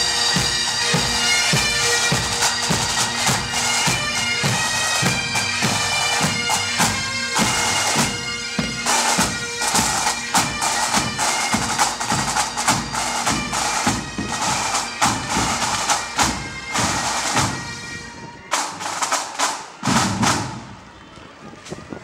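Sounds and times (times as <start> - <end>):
bagpipes playing march: 0.0 - 22.0
snare and bass drum beats: 18.5 - 20.7.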